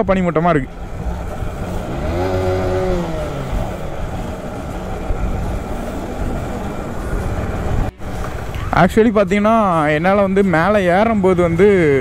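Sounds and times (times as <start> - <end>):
wind and road rumble: 0.0 - 12.0
motorcycle engine revving: 0.7 - 8.8.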